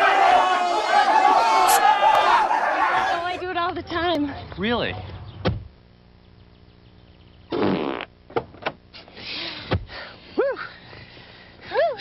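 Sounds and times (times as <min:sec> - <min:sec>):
fart: 0:07.5 - 0:08.1.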